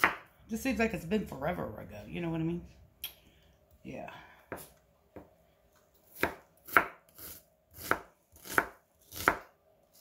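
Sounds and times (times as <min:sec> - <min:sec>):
knife chopping on wooden board: 0:00.0 - 0:00.3, 0:06.1 - 0:09.5.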